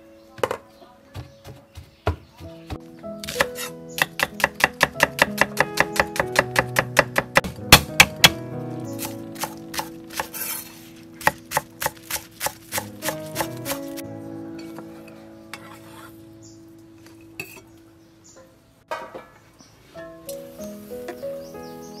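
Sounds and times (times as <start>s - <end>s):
background music: 0.0s - 22.0s
knife chopping on wooden board: 3.2s - 8.4s, 11.2s - 13.9s.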